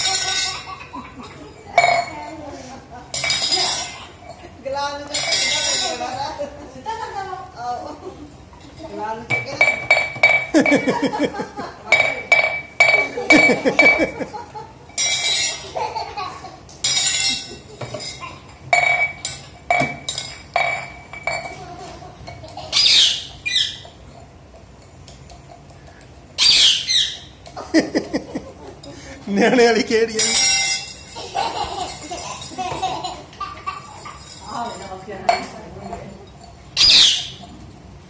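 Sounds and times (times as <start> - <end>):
metal tumbler clattering on tiles: 0.0 - 16.2, 16.8 - 26.2, 27.1 - 38.0
parakeet squawks: 22.7 - 23.9, 26.4 - 27.3, 36.8 - 37.4.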